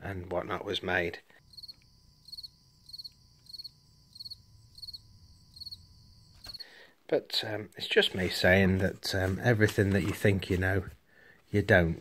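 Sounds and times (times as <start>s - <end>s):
crickets chirping: 1.4s - 6.9s.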